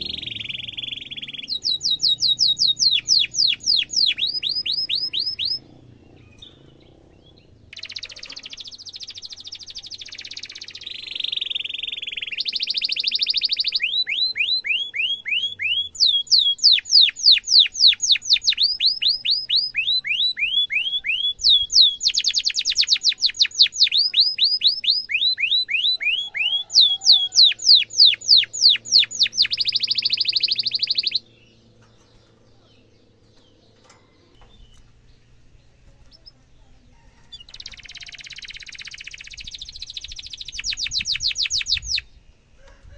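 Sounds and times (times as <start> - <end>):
canary singing: 0.0 - 42.5.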